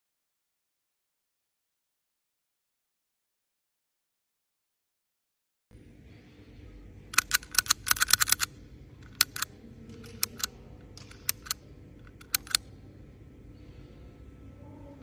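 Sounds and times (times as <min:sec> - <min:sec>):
tally counter clicking: 0:07.1 - 0:12.6.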